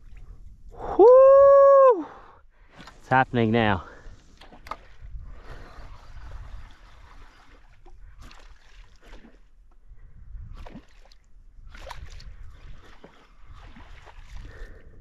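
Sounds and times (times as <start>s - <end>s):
water lapping against board: 4.2s - 9.7s, 10.5s - 14.8s.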